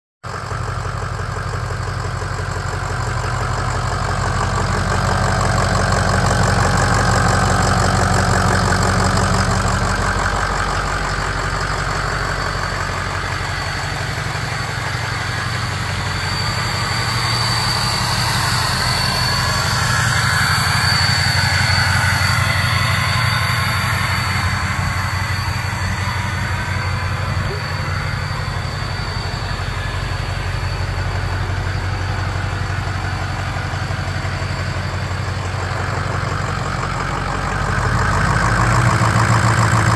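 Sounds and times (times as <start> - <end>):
diesel truck engine idling: 0.2 - 39.9
faint high whine: 12.2 - 36.5.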